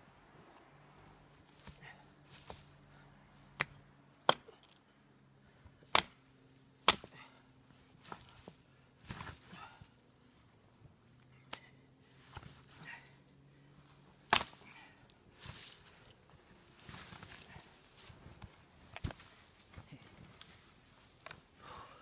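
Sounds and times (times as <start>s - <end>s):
hatchet chopping wood: 3.6s - 4.8s, 5.9s - 6.2s, 6.8s - 7.1s, 14.3s - 14.6s.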